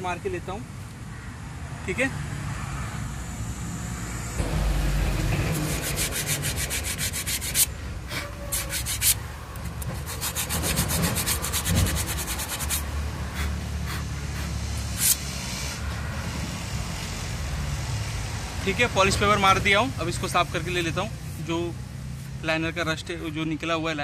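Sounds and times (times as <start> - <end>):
abrasive paper scraping brake lining: 5.4 - 15.3.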